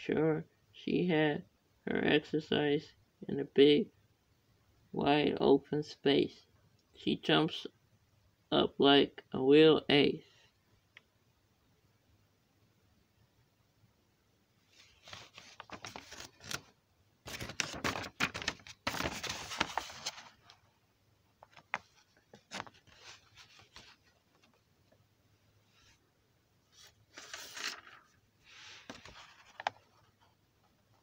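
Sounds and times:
paper pages rustling: 14.7 - 20.7, 21.4 - 24.7, 26.7 - 30.4.

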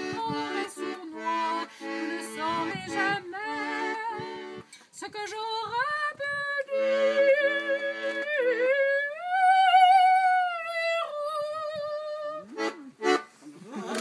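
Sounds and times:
piano accordion chords: 0.0 - 4.7, 12.6 - 13.3
woman singing: 0.0 - 12.7.

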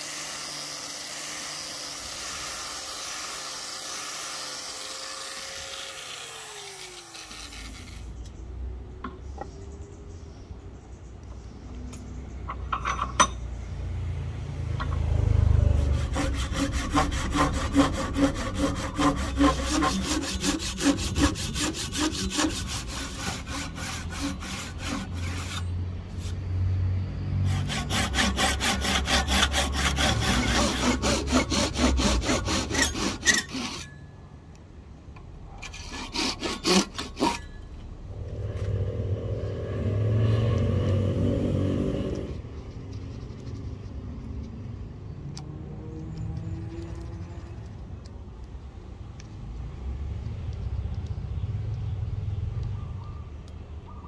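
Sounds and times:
hand saw cutting wood: 0.0 - 8.2, 15.6 - 26.4, 27.4 - 34.0, 35.5 - 37.7, 40.1 - 42.4.

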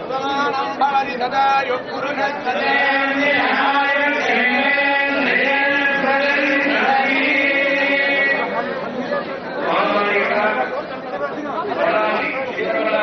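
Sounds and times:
murmur of crowd voices: 0.0 - 13.0
men chanting: 1.5 - 8.6, 9.6 - 10.7.

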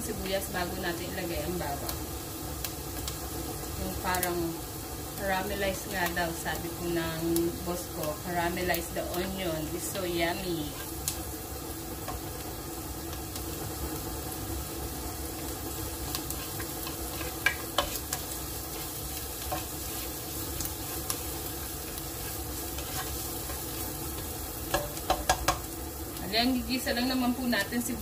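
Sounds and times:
onions sizzling in oil: 0.0 - 28.0
spatula stirring and scraping: 10.4 - 14.0, 14.8 - 25.8.

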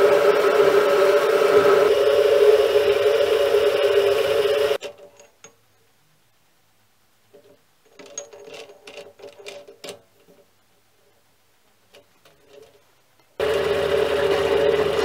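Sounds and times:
lathe running: 0.0 - 4.8, 13.4 - 15.0.

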